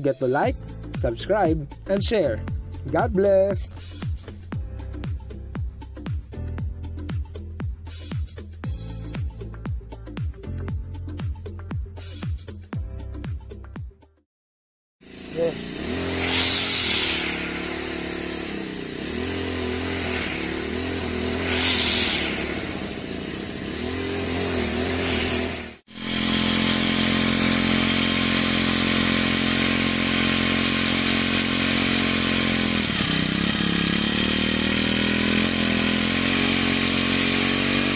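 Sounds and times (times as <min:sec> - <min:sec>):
small engine revving: 0:15.0 - 0:37.9.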